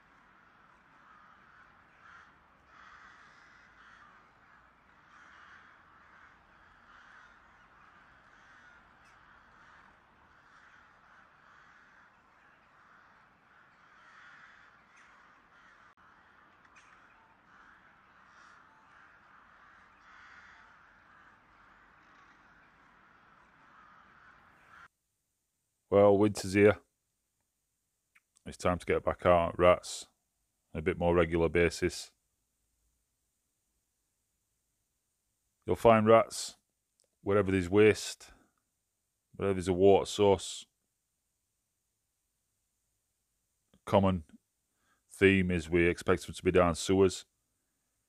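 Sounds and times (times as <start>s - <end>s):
faint crows cawing: 0.0s - 25.0s, 35.6s - 40.8s, 43.7s - 48.0s.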